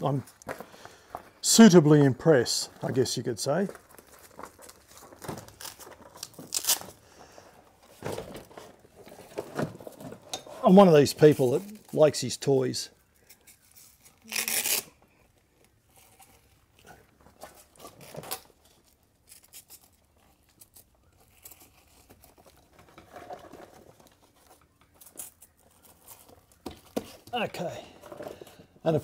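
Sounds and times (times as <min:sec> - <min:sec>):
hook-and-loop strap ripping: 0:04.2 - 0:07.0, 0:13.2 - 0:23.7
straps and fabric rustling: 0:13.0 - 0:26.6.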